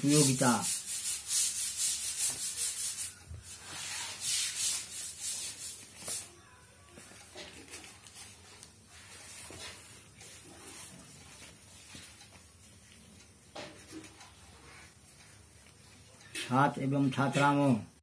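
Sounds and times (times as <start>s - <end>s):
paper rustling: 5.4s - 6.3s, 7.0s - 12.5s.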